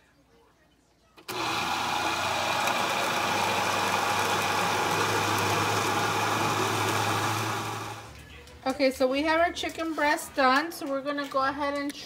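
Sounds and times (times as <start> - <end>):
blender running: 1.3 - 8.1.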